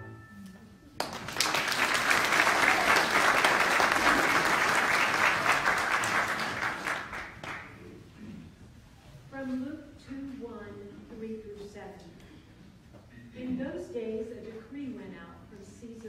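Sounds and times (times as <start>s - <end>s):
audience applauding: 1.0s - 7.9s.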